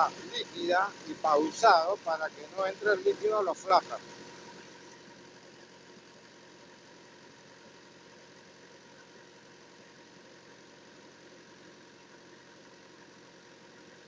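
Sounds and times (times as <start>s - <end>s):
diesel truck engine idling: 0.0s - 14.0s.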